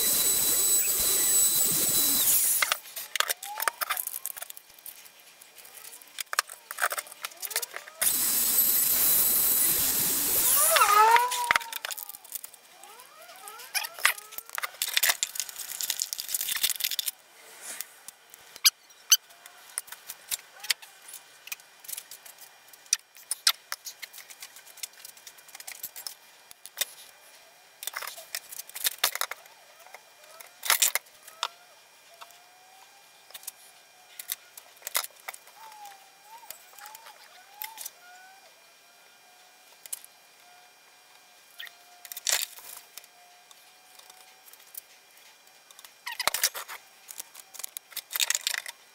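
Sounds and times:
faint rising and falling whistles: 0:00.0 - 0:02.7, 0:08.0 - 0:11.9.

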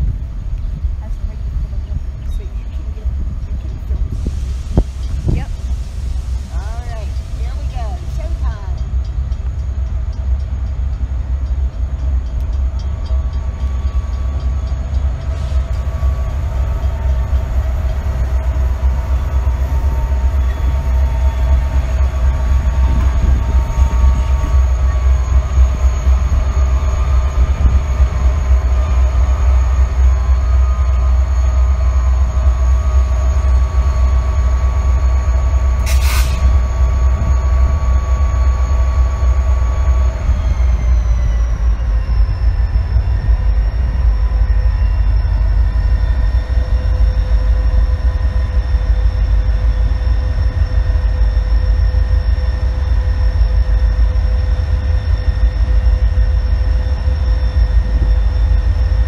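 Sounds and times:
locomotive engine rumble: 0:00.0 - 0:59.0
brief hiss: 0:35.8 - 0:36.5.

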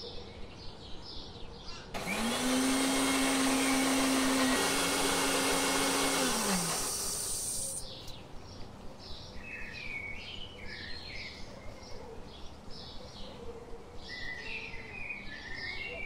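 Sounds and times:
birds chirping: 0:00.0 - 0:16.0
mixer grinder motor whining down: 0:02.0 - 0:07.8.

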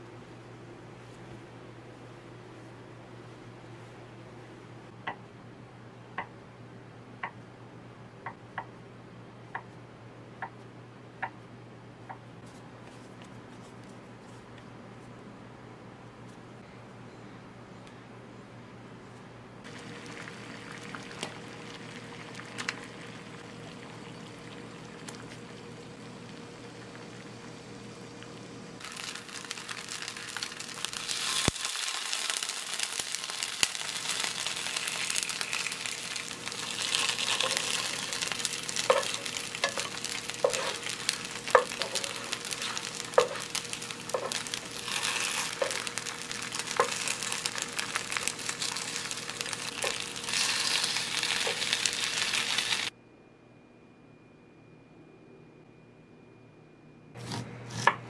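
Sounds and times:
gnocchi sizzling in a frying pan: 0:19.6 - 0:52.9
pot of water boiling: 0:19.6 - 0:52.9
spatula knocking and scraping pan: 0:38.8 - 0:40.8, 0:41.5 - 0:43.5.

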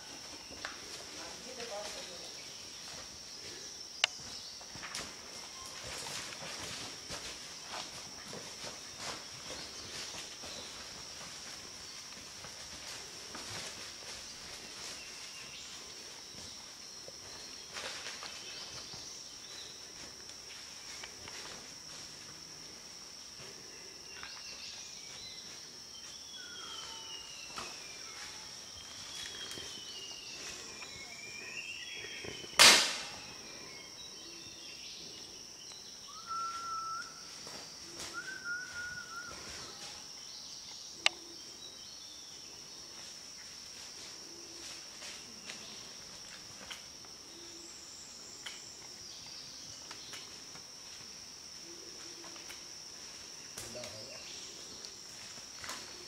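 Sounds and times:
insect drone: 0:00.0 - 0:56.0
loud sharp bang: 0:32.6 - 0:33.2
whistled notes: 0:36.1 - 0:37.2, 0:38.1 - 0:39.7.

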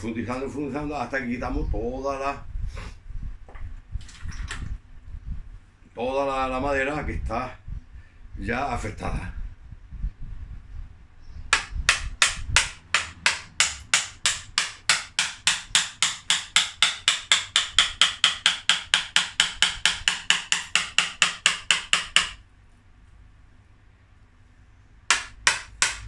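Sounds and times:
mallet striking chisel into wood: 0:11.5 - 0:22.4, 0:25.1 - 0:26.0.

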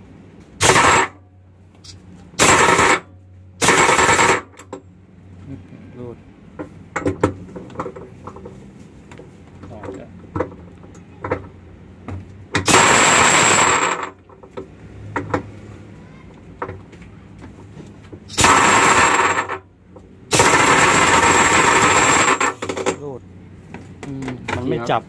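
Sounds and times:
impact wrench hammering: 0:00.6 - 0:01.2, 0:02.4 - 0:04.8, 0:11.2 - 0:15.5, 0:18.3 - 0:23.1
tool knocking: 0:06.5 - 0:08.6.

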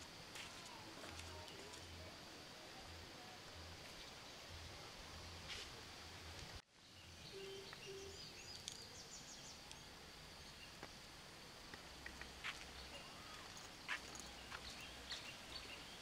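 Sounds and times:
low hiss: 0:00.0 - 0:16.0
faint high chirps: 0:06.9 - 0:10.9, 0:12.0 - 0:16.0.

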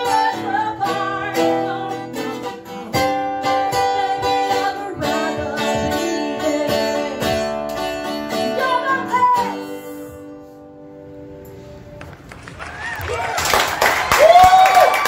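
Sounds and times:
woman singing: 0:00.0 - 0:10.2
strummed acoustic guitar: 0:00.0 - 0:11.7.

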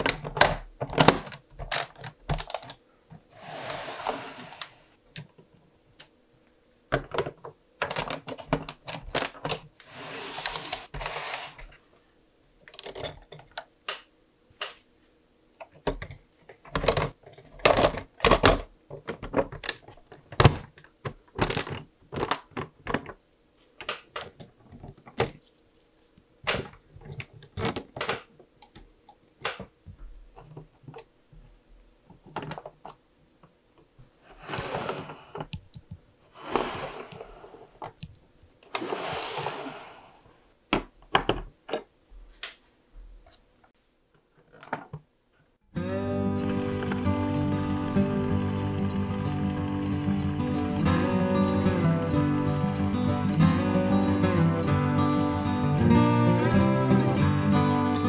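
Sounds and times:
plastic pieces scraping: 0:00.0 - 0:02.8, 0:07.1 - 0:11.7, 0:16.4 - 0:23.2, 0:26.5 - 0:28.8
plastic bricks clicking: 0:07.0 - 0:09.7.

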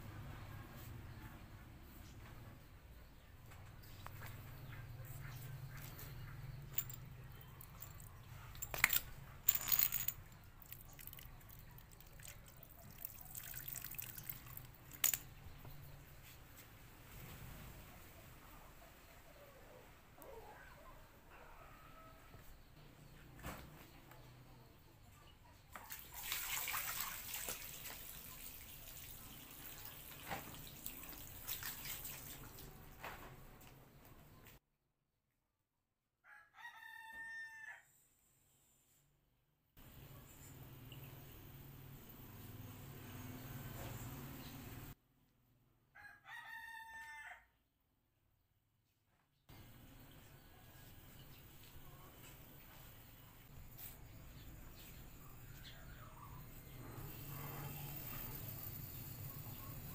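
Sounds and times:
sharp clinks and splashes: 0:05.8 - 0:15.6, 0:25.7 - 0:32.8
water trickling from a hose: 0:10.5 - 0:15.0, 0:25.8 - 0:32.8.

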